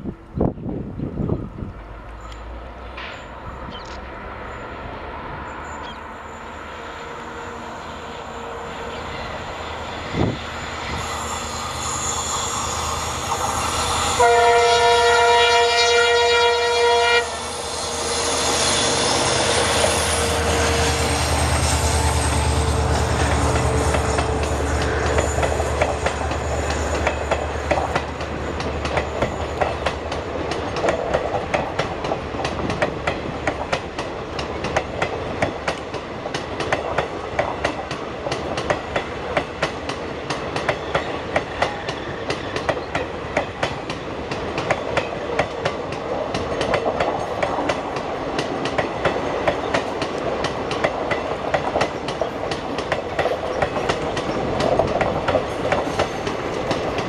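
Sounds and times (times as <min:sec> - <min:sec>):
train wheels clicking over rail joints: 0:01.7 - 0:04.2, 0:17.4 - 0:57.0.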